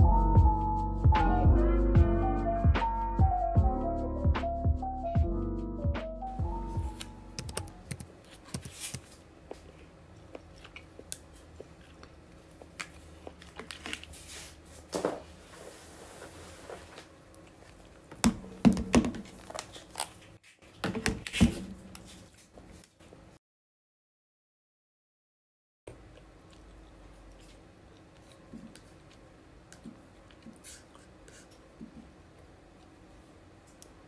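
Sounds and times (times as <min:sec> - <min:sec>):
soft background music: 0:00.0 - 0:08.0.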